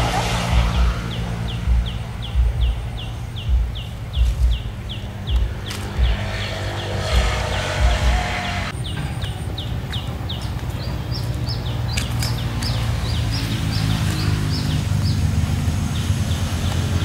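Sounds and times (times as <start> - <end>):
steady low hum: 0.0 - 9.0.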